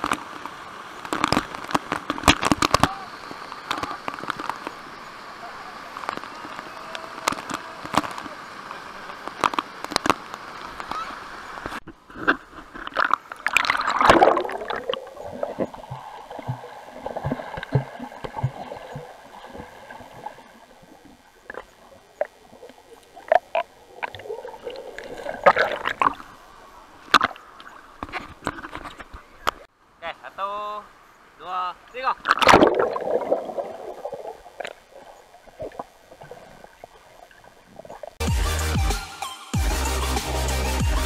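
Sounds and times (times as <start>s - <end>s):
waterfall water rushing: 0.0s - 11.8s
knocks and splashes: 11.7s - 20.5s, 23.2s - 26.3s, 32.2s - 34.8s
underwater gurgling and bubbling: 12.4s - 28.7s, 32.3s - 38.2s.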